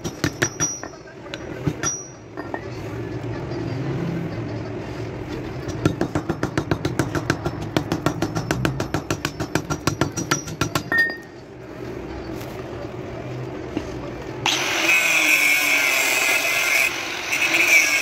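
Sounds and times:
hammer tapping on metal: 0:00.0 - 0:02.7, 0:05.6 - 0:11.4.

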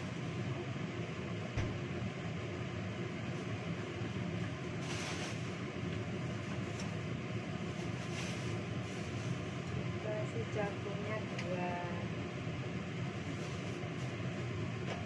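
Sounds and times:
low machine hum: 0:00.0 - 0:15.0
plastic bag rustling: 0:07.6 - 0:09.6.

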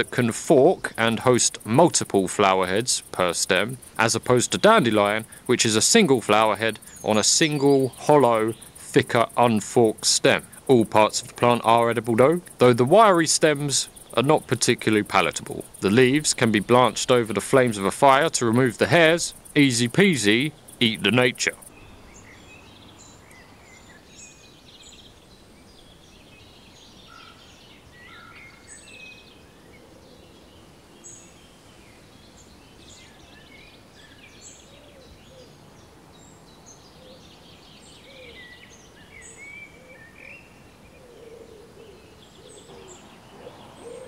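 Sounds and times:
small birds chirping: 0:00.0 - 0:44.0
steady background hiss: 0:00.0 - 0:44.0.

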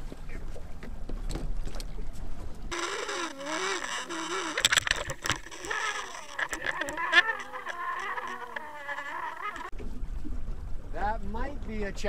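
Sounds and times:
water noise: 0:00.0 - 0:12.0
wind: 0:00.0 - 0:12.0
underwater buzzing whine: 0:02.7 - 0:09.8.

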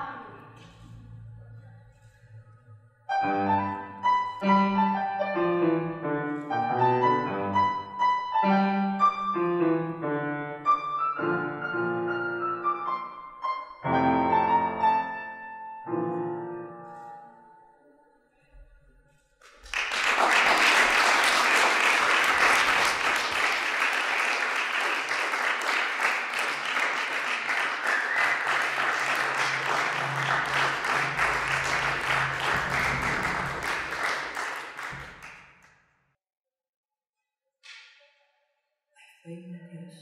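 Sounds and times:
piano notes: 0:03.1 - 0:18.1, 0:28.5 - 0:35.3
audience clapping: 0:19.4 - 0:35.7.

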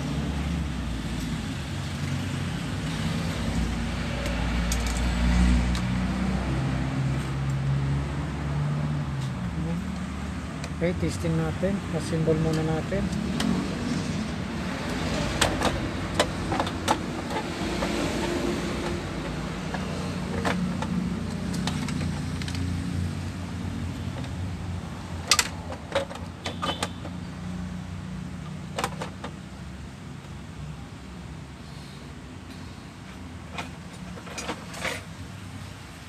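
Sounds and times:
clicks and knocks of parts: 0:04.2 - 0:05.9, 0:14.8 - 0:22.8, 0:25.2 - 0:27.2, 0:28.4 - 0:29.4, 0:32.5 - 0:35.2.

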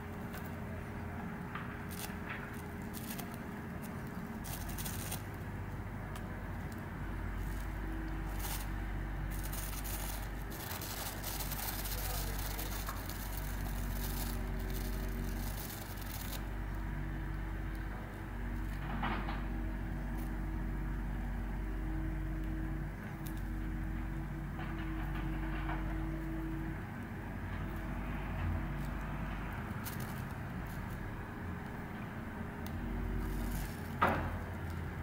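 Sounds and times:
bird pecking plastic bag: 0:00.2 - 0:17.9, 0:27.6 - 0:31.9, 0:32.5 - 0:35.0.

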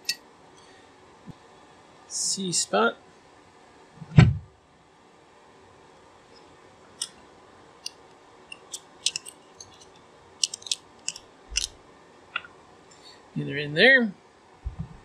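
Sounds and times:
small metal clicks and taps: 0:07.8 - 0:11.7.

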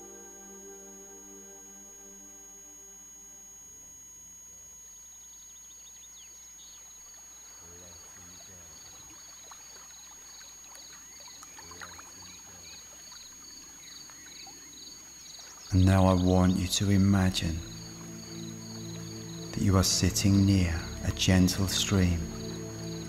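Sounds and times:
ambient music pad: 0:00.0 - 0:23.0
faint high chirping: 0:00.0 - 0:23.0
trickling stream: 0:06.1 - 0:23.0.

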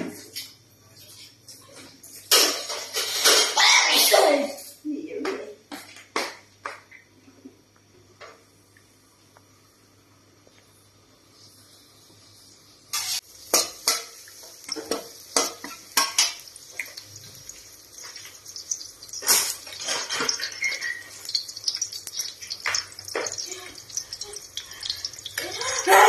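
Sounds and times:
aromatics sizzling in oil: 0:10.4 - 0:26.0
metal spatula scraping a wok: 0:12.9 - 0:14.2.

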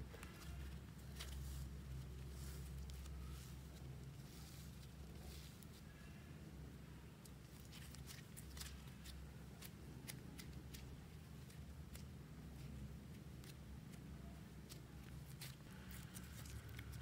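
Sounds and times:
slime crackling when kneaded: 0:07.2 - 0:17.0.

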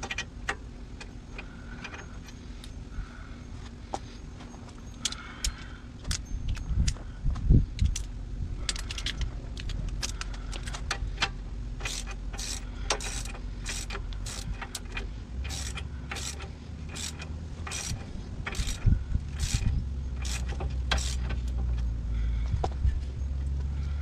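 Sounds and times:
low steady hum: 0:00.0 - 0:24.0
hand ratchet clicking: 0:08.7 - 0:21.4.

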